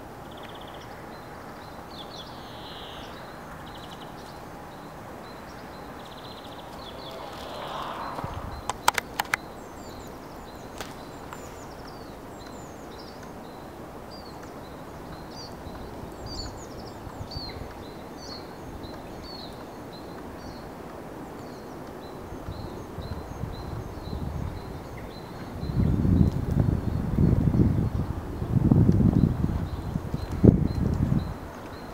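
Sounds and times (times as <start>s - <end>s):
songbird chirping: 0.0s - 28.5s
low outdoor rumble: 0.8s - 11.8s.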